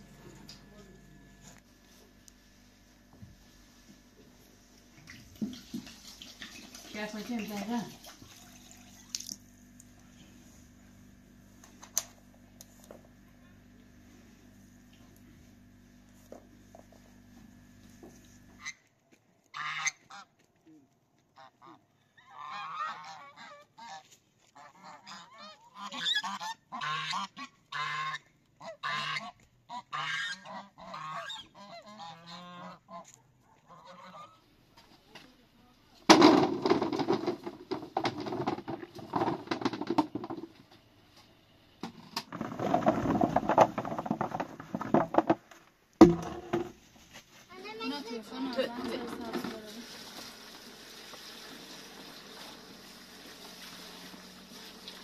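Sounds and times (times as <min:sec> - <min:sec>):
geese honking: 0:19.5 - 0:20.3, 0:21.4 - 0:34.5
rustling and knocking: 0:36.1 - 0:40.8, 0:41.8 - 0:47.5.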